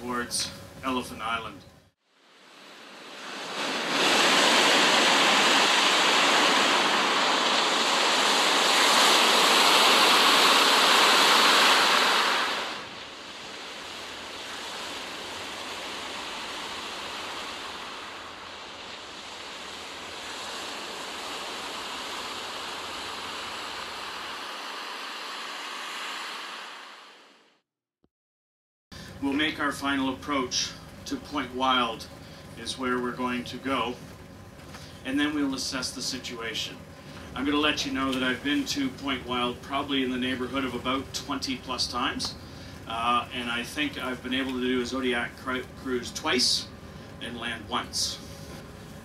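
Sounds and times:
rough sea at ship's bow: 0:02.1 - 0:27.5, 0:29.2 - 0:49.0
wind rushing: 0:02.2 - 0:27.5.

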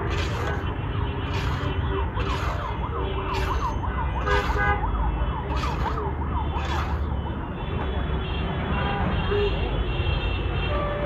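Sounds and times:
ladle scraping sand in a wok: 0:00.0 - 0:04.8, 0:05.5 - 0:07.1
siren yelping: 0:01.3 - 0:07.2.

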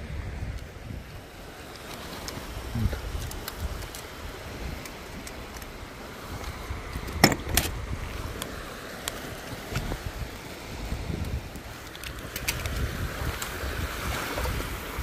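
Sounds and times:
wind rumbling on microphone: 0:00.0 - 0:15.0
small clicks: 0:03.2 - 0:04.1.

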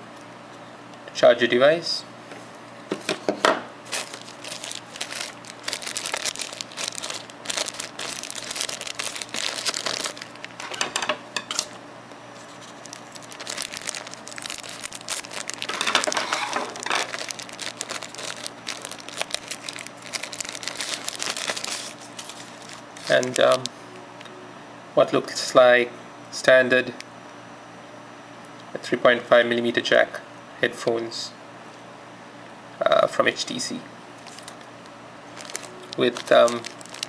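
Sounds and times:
plastic bag crinkling: 0:03.8 - 0:10.8, 0:12.4 - 0:23.7, 0:34.2 - 0:37.0.

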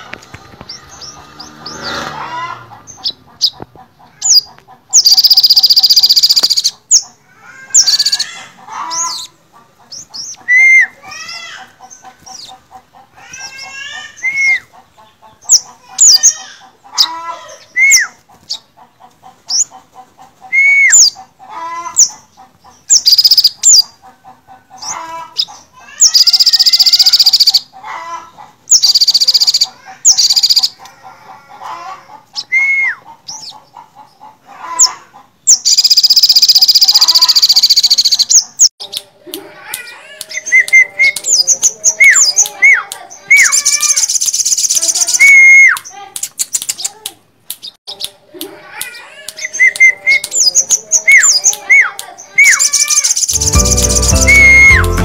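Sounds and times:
bird chirps and trills: 0:00.4 - 0:18.8, 0:48.9 - 0:55.0
loud high buzzy bird trills: 0:00.7 - 0:03.2, 0:52.4 - 0:55.0.

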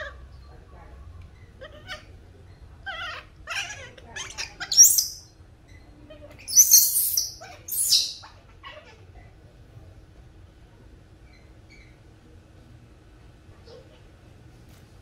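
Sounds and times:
baby monkey squealing: 0:02.9 - 0:05.3, 0:06.4 - 0:08.4.

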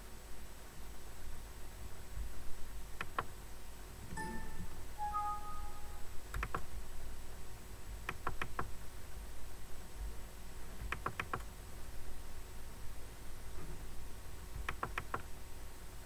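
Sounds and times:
computer mouse clicks: 0:03.0 - 0:03.3, 0:06.3 - 0:06.7, 0:08.0 - 0:08.7, 0:10.8 - 0:11.5, 0:14.6 - 0:15.3
two-tone alert chime: 0:04.2 - 0:06.1.

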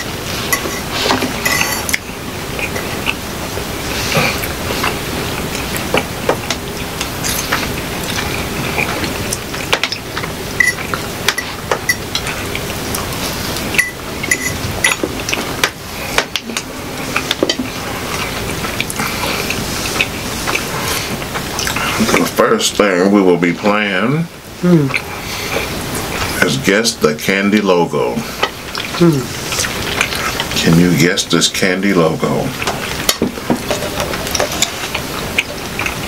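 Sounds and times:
forks clinking and scraping plates: 0:00.0 - 0:02.0, 0:13.7 - 0:18.4
metallic pings: 0:13.8 - 0:15.0.

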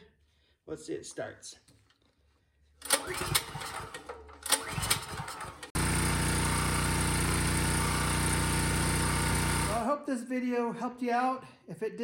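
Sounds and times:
generator engine cranking and running: 0:02.8 - 0:09.8.

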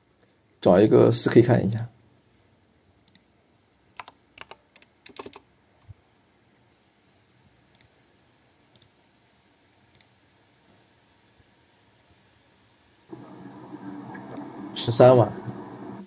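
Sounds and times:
computer keyboard typing: 0:04.0 - 0:05.4
mouse clicks: 0:07.7 - 0:07.9, 0:08.7 - 0:08.9.

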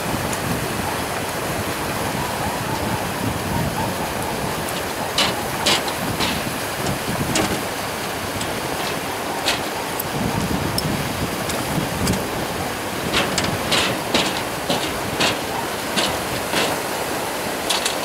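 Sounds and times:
river rushing: 0:00.0 - 0:18.0
sharp clicks and knocks: 0:04.7 - 0:10.1, 0:13.1 - 0:16.9, 0:17.6 - 0:18.0.

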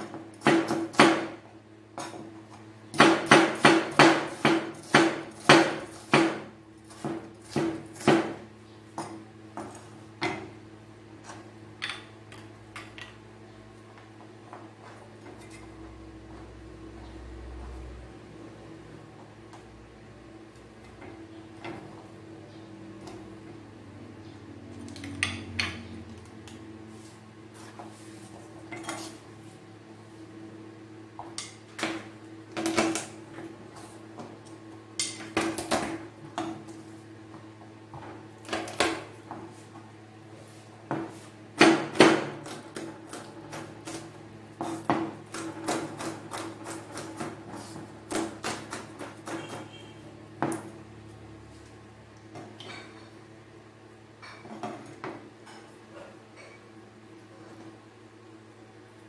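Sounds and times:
dishes clinking on table: 0:55.4 - 0:56.7.

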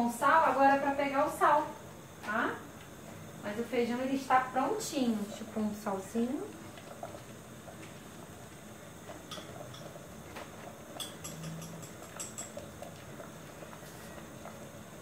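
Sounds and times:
kitchen items clicking and tapping: 0:09.1 - 0:13.4.

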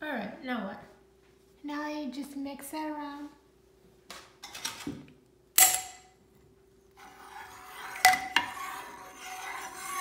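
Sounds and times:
spoon scraping a pot: 0:06.9 - 0:10.0.

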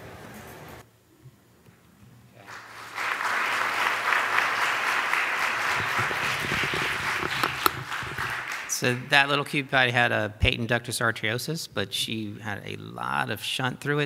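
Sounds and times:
audience applauding: 0:02.4 - 0:09.4.

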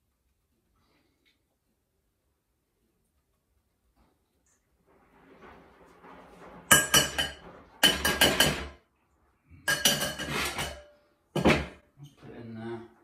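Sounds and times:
metal sieve clinking on steel bowl: 0:06.7 - 0:08.8, 0:09.7 - 0:10.9.

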